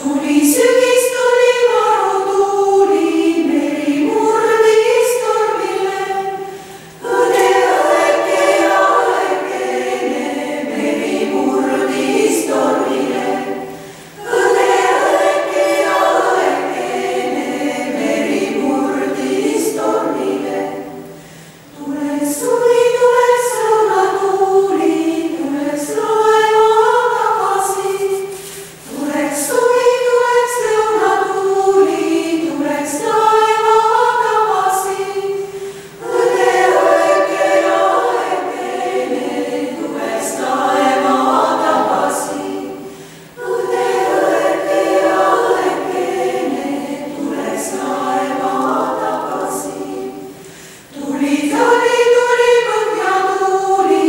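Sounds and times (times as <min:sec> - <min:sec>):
women's choir singing: 0:00.0 - 0:54.0
singers breathing: 0:06.4 - 0:07.0, 0:13.7 - 0:14.2, 0:21.0 - 0:21.7, 0:35.4 - 0:36.0, 0:42.8 - 0:43.4, 0:50.3 - 0:51.0.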